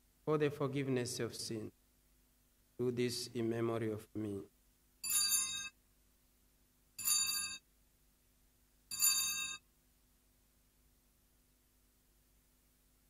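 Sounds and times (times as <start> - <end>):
altar bells jingling: 8.9 - 9.6.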